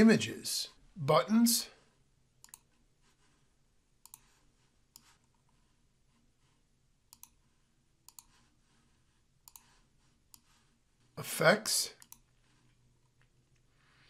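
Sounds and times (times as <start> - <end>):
computer mouse clicks: 2.4 - 2.8, 4.0 - 5.4, 7.1 - 7.4, 8.0 - 8.4, 9.4 - 10.6, 12.0 - 12.3.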